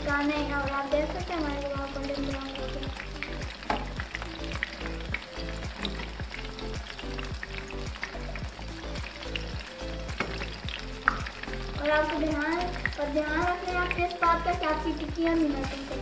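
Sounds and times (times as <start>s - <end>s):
patties deep-frying in oil: 0.0s - 16.0s.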